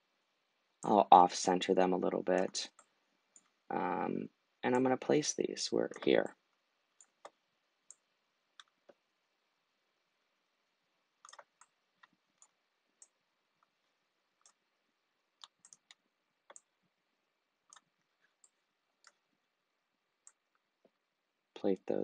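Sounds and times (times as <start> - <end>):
computer mouse clicking: 7.0 - 8.0, 8.6 - 9.0, 11.2 - 13.7, 14.4 - 14.6, 15.4 - 16.7, 17.6 - 19.2.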